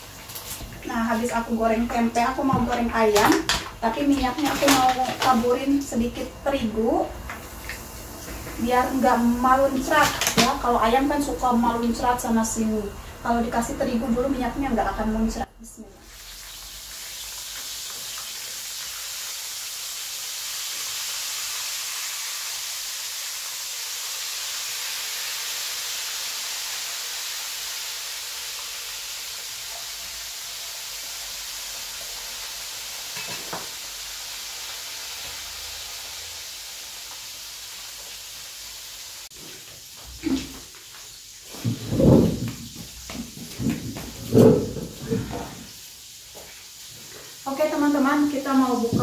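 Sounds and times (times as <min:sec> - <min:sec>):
chicken sizzling in hot oil: 0:16.0 - 0:49.0.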